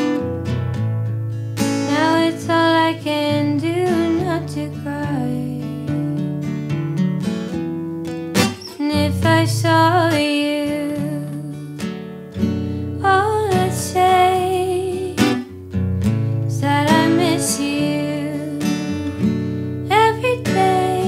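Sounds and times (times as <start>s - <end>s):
acoustic guitar folk ballad: 0.0s - 21.0s
woman singing: 1.8s - 6.4s, 8.6s - 11.8s, 13.0s - 15.5s, 16.5s - 19.1s, 19.8s - 21.0s.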